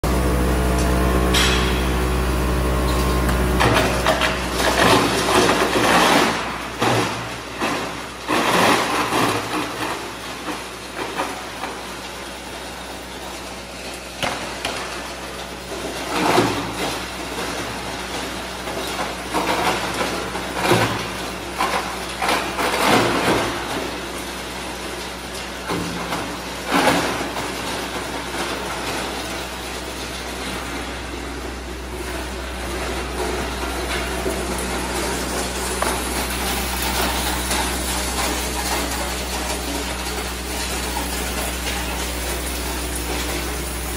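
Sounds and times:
pipe crusher machine humming: 0:00.0 - 0:43.9.

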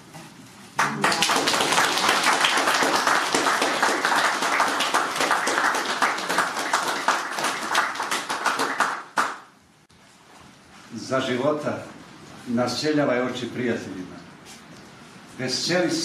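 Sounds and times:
audience applauding: 0:00.8 - 0:09.5.

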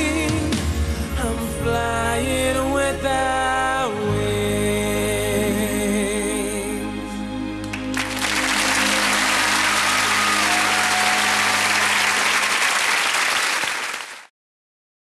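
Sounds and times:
pop ballad chord: 0:00.0 - 0:11.5
audience applauding: 0:07.6 - 0:14.3.

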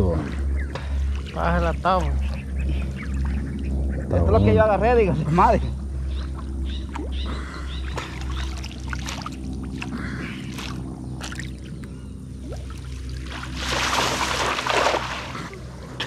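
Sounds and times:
steady low hum: 0:00.0 - 0:16.0
water splashing and sloshing: 0:06.1 - 0:16.0.

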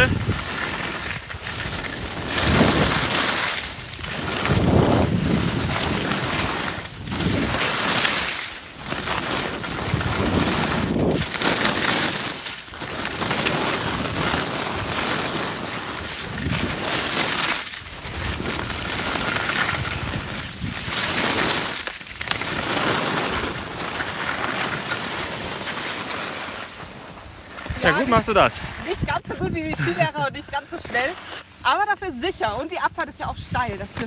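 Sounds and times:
wind rushing over microphone: 0:00.0 - 0:03.4, 0:04.0 - 0:08.0, 0:09.6 - 0:11.5, 0:27.7 - 0:31.0
skis scraping through snow: 0:00.0 - 0:34.0.

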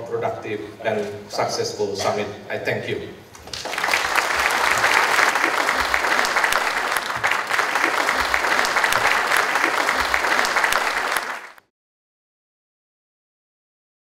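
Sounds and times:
audience applauding: 0:03.4 - 0:11.6.

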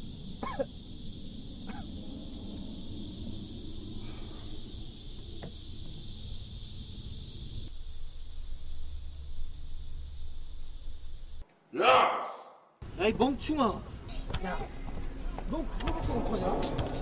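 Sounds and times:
steady low hum: 0:00.0 - 0:11.4
high outdoor hiss: 0:00.0 - 0:11.7, 0:12.8 - 0:17.0.

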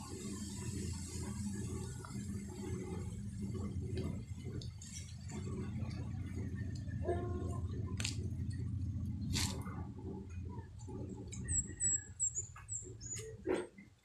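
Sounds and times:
low rumble: 0:00.0 - 0:13.0
bird chirping: 0:11.4 - 0:13.4.

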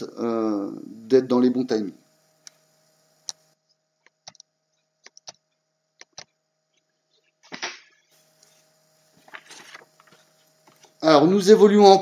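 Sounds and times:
sharp clicks: 0:03.2 - 0:05.4, 0:06.0 - 0:06.4.

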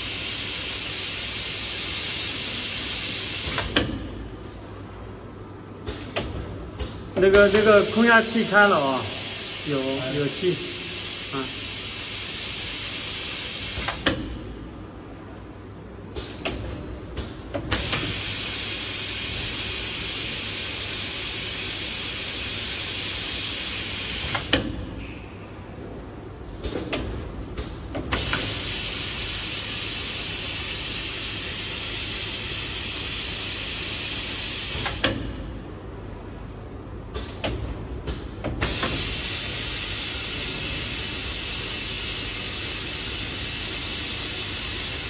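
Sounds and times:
compressed air hissing: 0:07.4 - 0:14.0, 0:28.1 - 0:34.9, 0:38.6 - 0:45.0.

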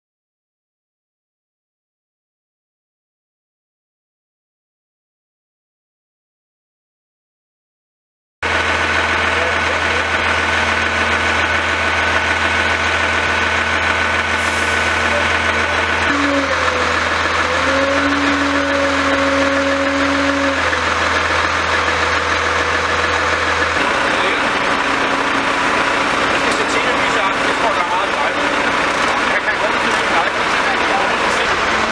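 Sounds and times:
diesel engines idling: 0:08.4 - 0:31.9.

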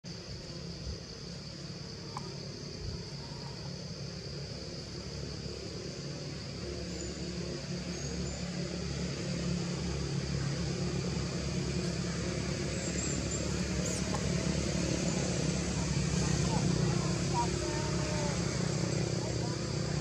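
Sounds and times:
low engine hum: 0:00.1 - 0:20.0.

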